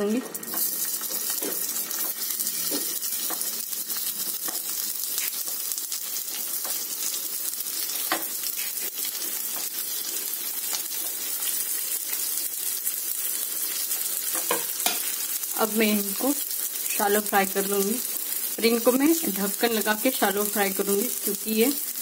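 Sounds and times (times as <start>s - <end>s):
oil sizzling in a pan: 0.0s - 22.0s.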